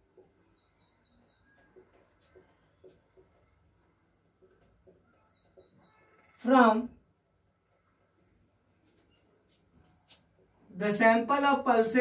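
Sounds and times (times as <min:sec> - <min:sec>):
marker writing on whiteboard: 0:00.0 - 0:06.4, 0:08.8 - 0:10.6.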